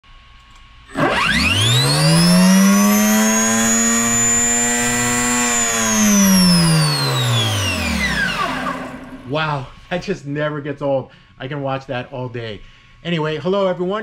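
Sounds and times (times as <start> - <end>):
electric motor whine: 0.9 - 9.4.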